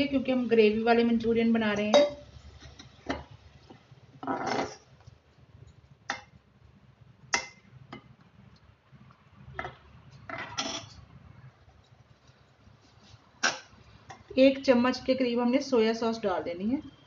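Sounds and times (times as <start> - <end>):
metal spoon scraping saucepan: 4.2 - 4.9.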